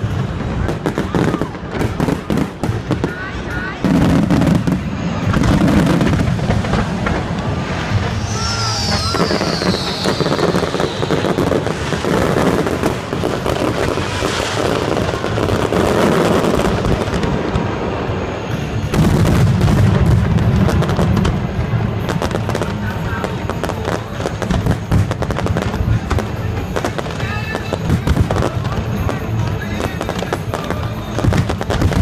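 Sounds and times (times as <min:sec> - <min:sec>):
fireworks crackling and booming: 0:00.0 - 0:32.0
falling firework whistle: 0:07.1 - 0:19.7.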